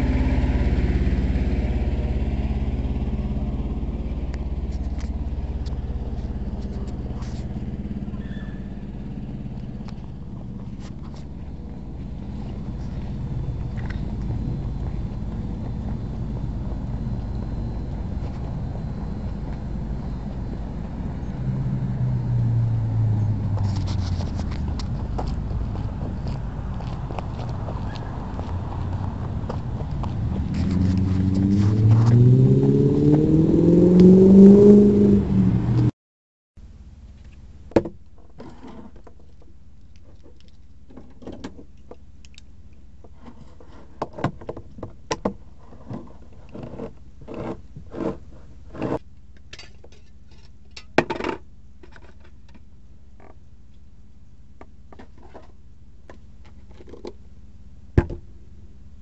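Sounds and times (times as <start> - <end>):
low steady hum: 0.0 - 35.9, 36.6 - 59.0
diesel truck engine accelerating: 0.0 - 36.0.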